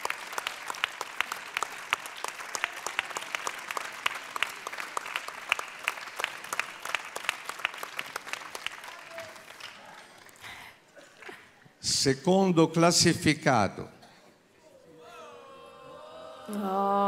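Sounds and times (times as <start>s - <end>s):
crowd applauding: 0.0s - 11.3s.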